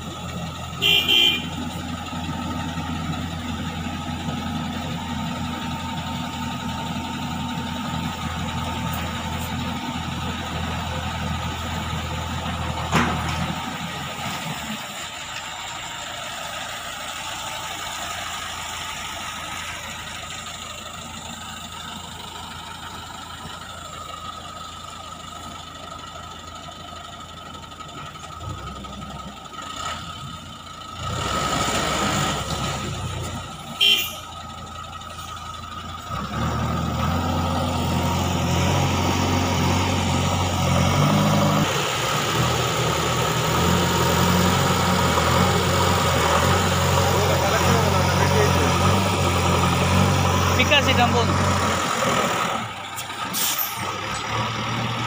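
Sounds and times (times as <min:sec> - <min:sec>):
diesel truck engine running: 0:00.0 - 0:55.0
truck horn toot: 0:00.8 - 0:01.8, 0:33.7 - 0:34.4.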